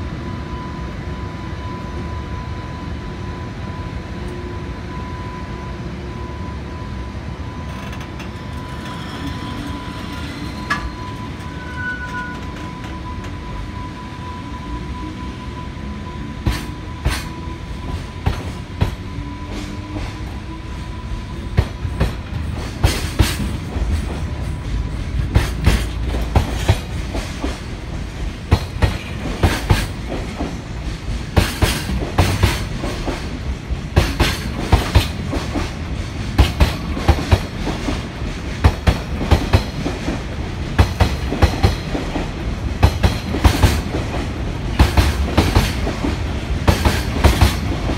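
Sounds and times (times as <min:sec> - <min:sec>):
freight train rumble: 0:00.0 - 0:47.9.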